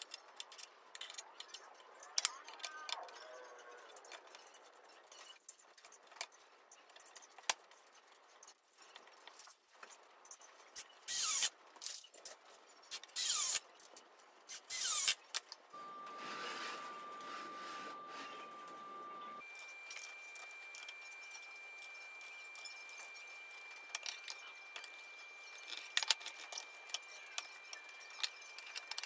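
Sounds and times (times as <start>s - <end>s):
cordless drill driving screws: 14.5s - 15.2s
thin steady tone: 15.7s - 29.0s.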